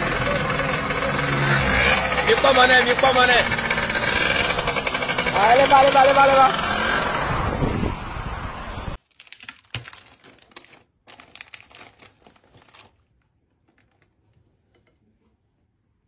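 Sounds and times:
motor noise: 0:00.0 - 0:08.9
plastic pack crinkling: 0:09.0 - 0:14.3
faint handling sounds: 0:09.0 - 0:16.0.

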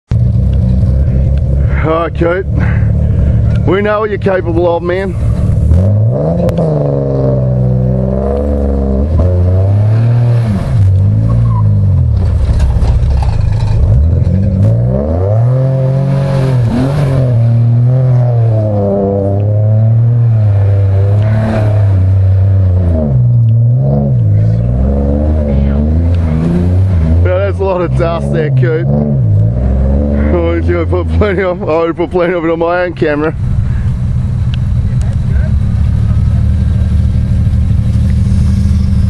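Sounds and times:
car engine revving hard: 0:00.2 - 0:31.6.

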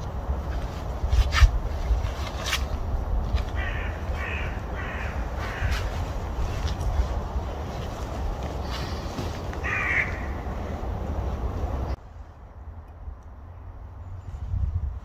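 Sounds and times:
steady low rumble: 0:00.0 - 0:15.0
crow cawing: 0:03.6 - 0:06.0, 0:09.6 - 0:10.7.

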